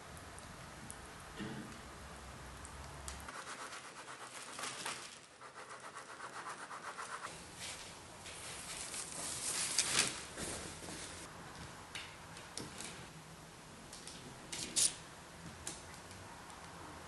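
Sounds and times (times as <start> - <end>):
paper rustling: 3.3 - 11.3.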